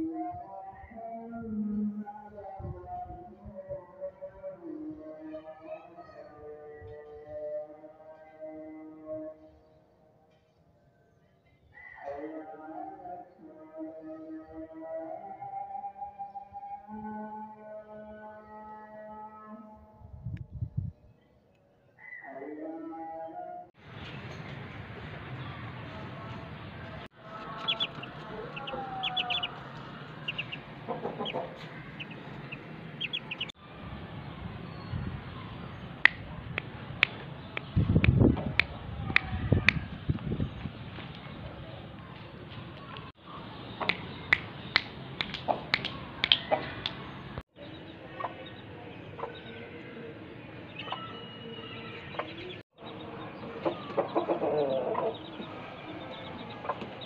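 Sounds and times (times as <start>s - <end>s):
chicks peeping: 26.9s - 33.5s, 53.4s - 57.0s
hen clucking: 27.2s - 33.5s, 53.7s - 55.5s.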